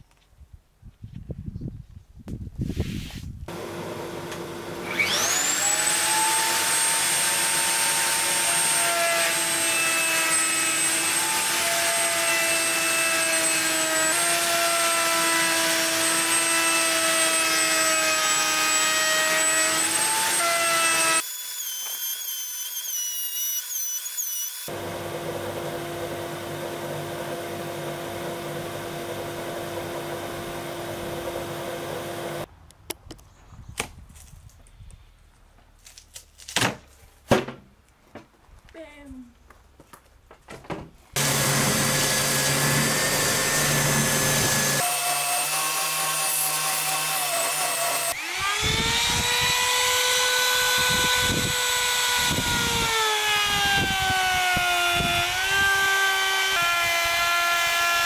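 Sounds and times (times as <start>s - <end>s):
router whining: 3.5s - 32.5s, 41.2s - 58.0s.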